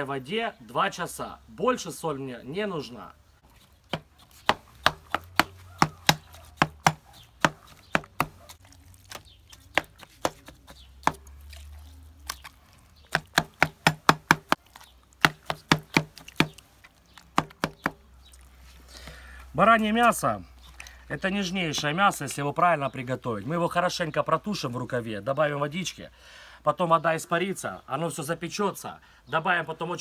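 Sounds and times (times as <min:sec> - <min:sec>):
knife stabbing into raw meat: 0:03.6 - 0:18.5.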